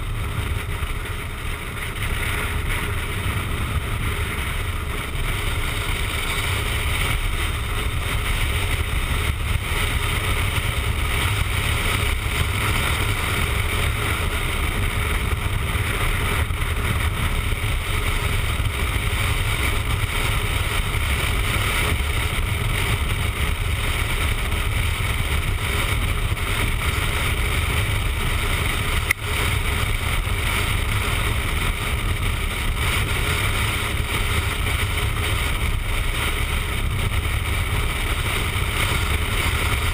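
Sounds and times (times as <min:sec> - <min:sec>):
motorcycle engine and road noise: 0:00.0 - 0:39.9
wind rush: 0:00.0 - 0:39.9.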